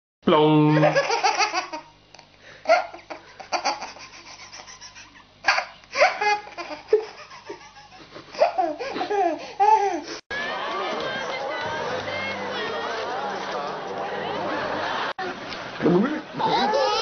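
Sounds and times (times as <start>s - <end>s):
baby laughing: 0.7s - 1.9s, 2.7s - 10.1s, 16.4s - 17.0s.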